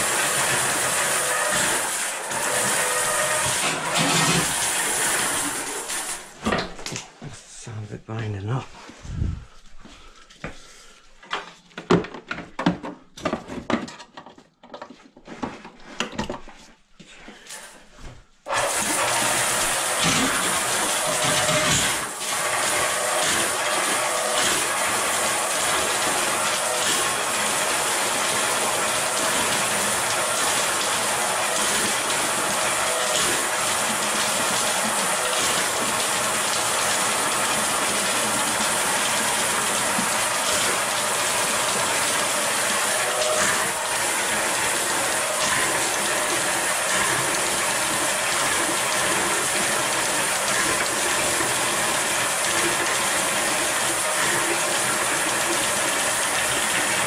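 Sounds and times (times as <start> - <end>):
drain cleaning machine whirring: 0.0 - 6.9, 18.5 - 57.0.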